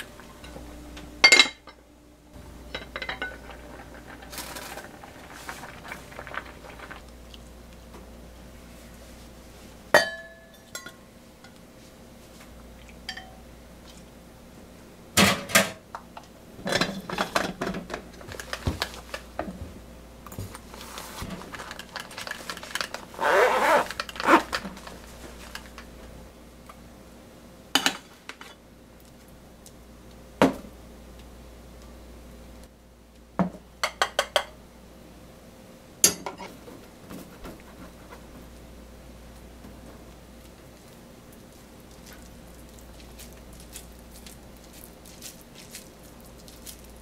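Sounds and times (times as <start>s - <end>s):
fabric pouch rustling: 21.0s - 25.6s.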